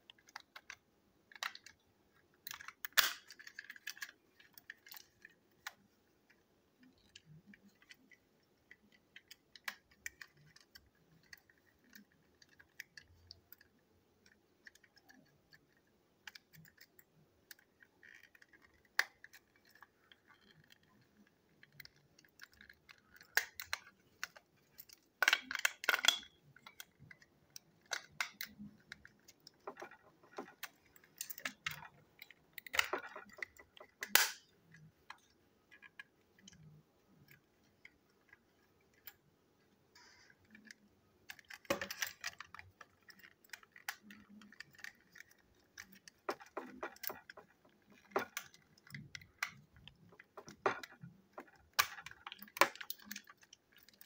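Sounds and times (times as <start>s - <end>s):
plastic toy clicks and rattles: 0.0s - 6.0s, 6.8s - 39.3s, 40.0s - 54.0s
plastic toy scraping and clattering: 40.0s - 54.0s.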